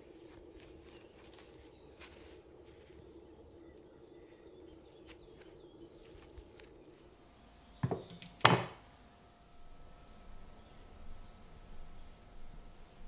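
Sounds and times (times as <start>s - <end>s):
faint hum with crackle: 0.0s - 13.0s
metal knocking on wood: 7.8s - 8.8s.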